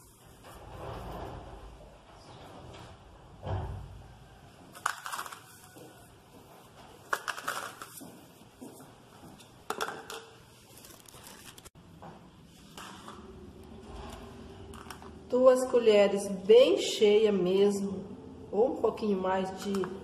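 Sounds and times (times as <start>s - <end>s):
plastic packaging crinkling: 10.6s - 11.8s.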